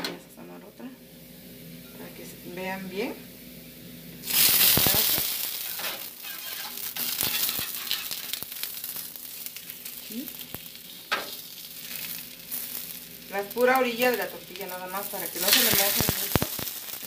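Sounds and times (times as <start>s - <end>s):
tortilla sizzling on a griddle: 2.6s - 17.0s
metal spatula scraping griddle: 5.6s - 8.4s.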